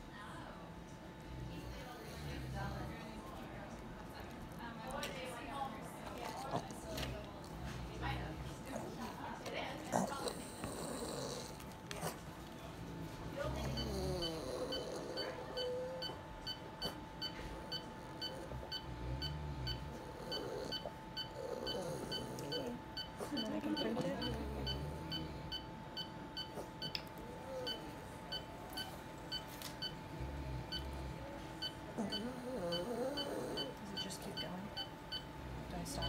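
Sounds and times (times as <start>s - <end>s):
patient monitor beeping: 13.4s - 36.0s.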